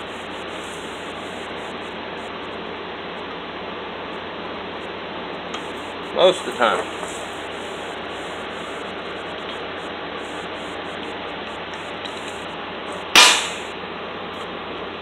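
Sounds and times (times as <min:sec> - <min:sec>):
hammer striking metal screwdriver: 0:13.2 - 0:13.6.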